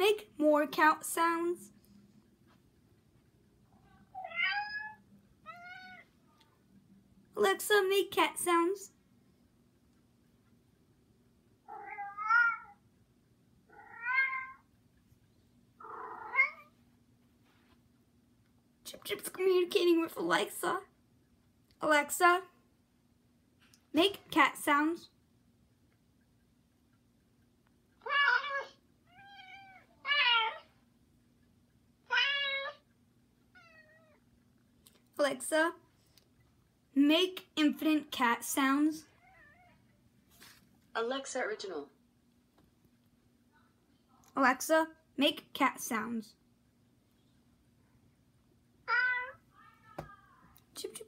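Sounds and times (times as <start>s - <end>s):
cat meowing: 4.1s - 6.1s, 11.7s - 12.8s, 13.7s - 14.6s, 15.8s - 16.7s, 28.0s - 30.7s, 32.1s - 32.8s, 33.5s - 34.2s, 39.2s - 39.8s, 48.9s - 49.4s
recorded cat meows from speaker: 4.1s - 6.1s, 11.7s - 12.8s, 13.7s - 14.6s, 15.8s - 16.7s, 28.0s - 30.7s, 32.1s - 32.8s, 48.9s - 49.4s.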